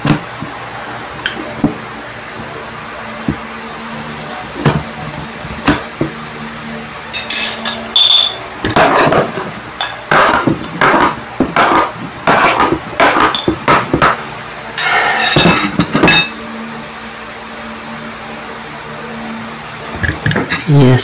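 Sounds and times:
metallic clinks: 7.2 - 8.4.

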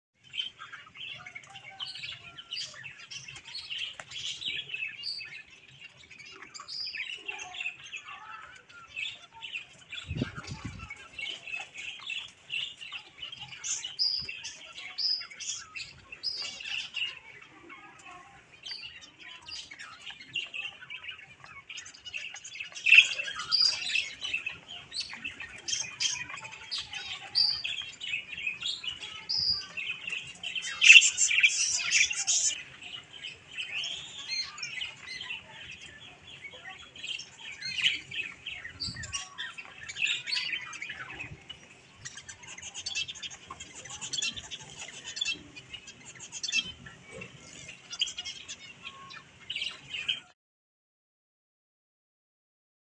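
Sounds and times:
budgerigars chirping: 18.9 - 50.3.

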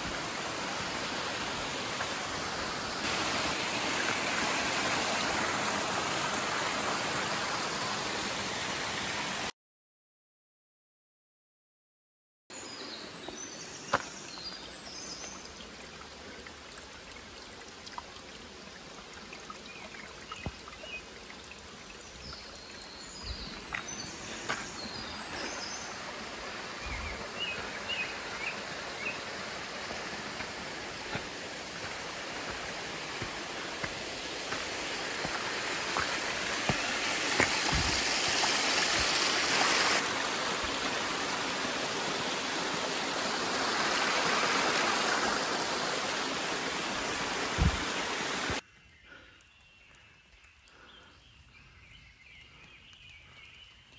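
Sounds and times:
stream running over rocks: 0.0 - 9.5, 12.6 - 48.6
footsteps on stone and gravel: 13.2 - 14.6, 23.2 - 25.7, 30.4 - 39.2.

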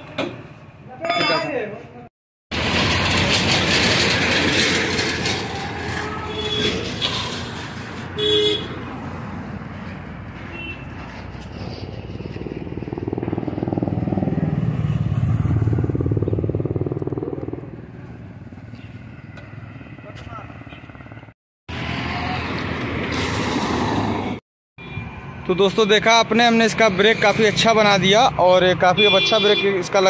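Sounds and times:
road traffic: 0.0 - 30.0
vehicle horn toot: 6.0 - 6.9, 8.2 - 8.8, 29.0 - 29.8
rapidly pulsing engine: 11.7 - 18.4.

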